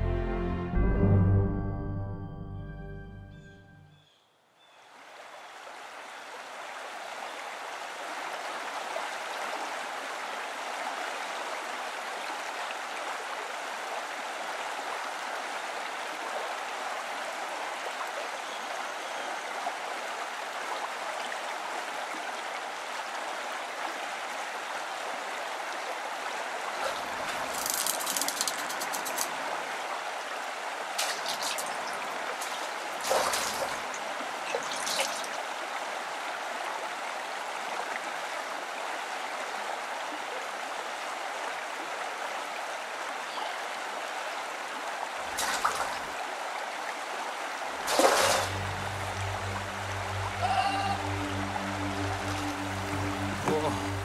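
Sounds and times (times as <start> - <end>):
river water flowing: 4.7 - 54.0
fish splashing at surface: 26.8 - 29.3, 31.0 - 33.9, 34.5 - 35.4, 45.3 - 46.0, 47.8 - 48.6.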